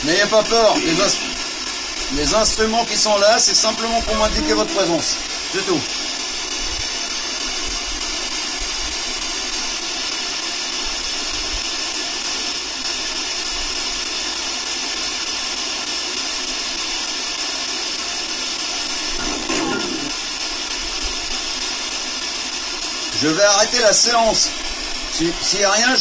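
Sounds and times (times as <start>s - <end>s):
steady hiss: 0.0s - 26.0s.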